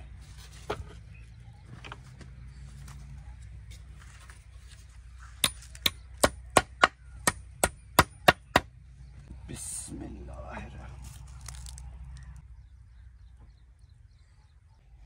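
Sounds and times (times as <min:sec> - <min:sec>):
hammer striking wooden plank: 0:05.4 - 0:08.7.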